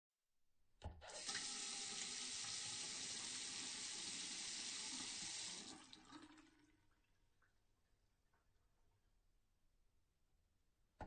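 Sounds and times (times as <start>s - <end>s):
tap water running into sink: 1.0s - 6.6s.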